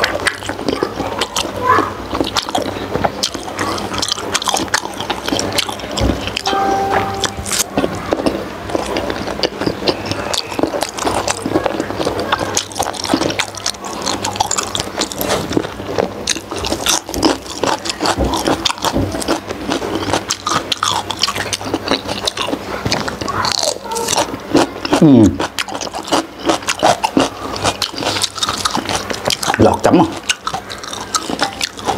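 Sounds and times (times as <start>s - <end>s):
close-up chewing with wet mouth clicks: 0.0s - 6.5s, 7.5s - 31.9s.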